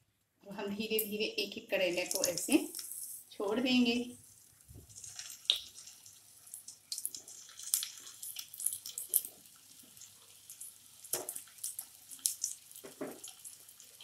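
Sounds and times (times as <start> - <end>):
oil sizzling in a frying pan: 1.8 - 14.0.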